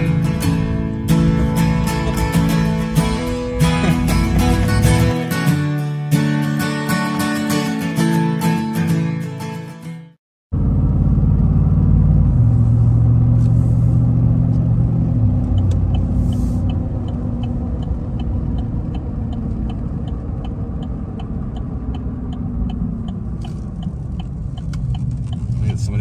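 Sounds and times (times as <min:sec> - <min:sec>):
engine and tyres rumbling: 0:00.0 - 0:06.6, 0:10.5 - 0:26.0
turn signal clicking: 0:14.4 - 0:26.0.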